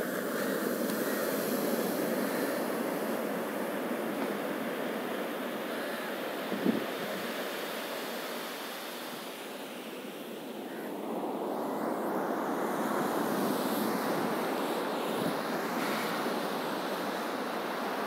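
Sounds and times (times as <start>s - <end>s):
waves washing onto beach: 0.0s - 18.0s.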